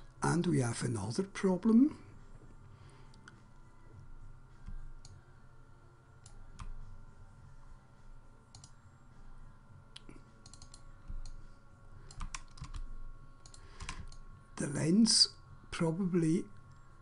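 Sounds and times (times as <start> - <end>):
faint steady hum: 0.0 - 17.0
mouse and keyboard clicks: 10.4 - 11.4.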